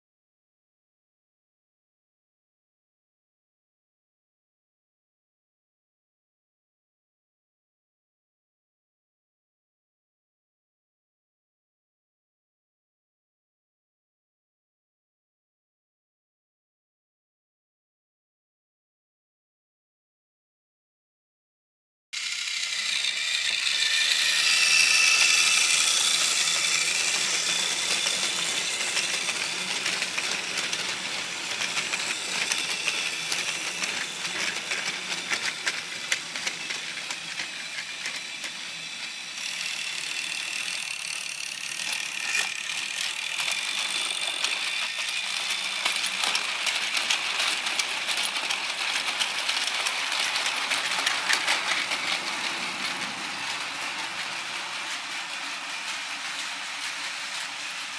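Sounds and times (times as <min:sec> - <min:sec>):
toy train motor whining: 0:22.2 - 0:57.9
wheels clicking over track joints: 0:22.3 - 0:57.9.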